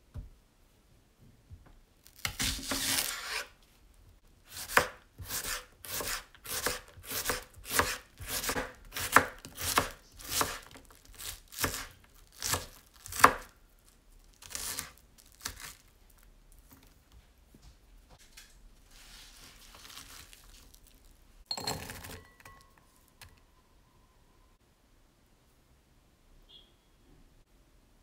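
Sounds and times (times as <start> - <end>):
knife chopping on wooden board: 4.5 - 13.5.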